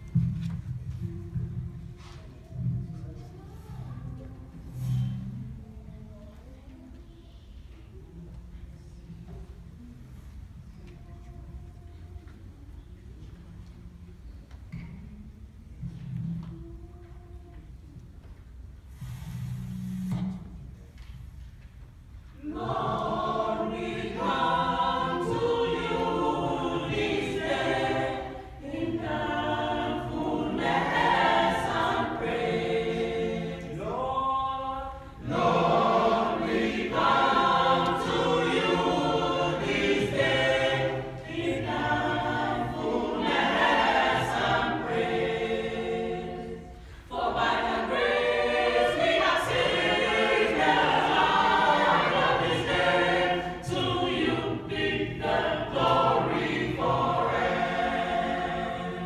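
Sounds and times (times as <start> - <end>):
mixed choir singing: 22.4 - 59.0.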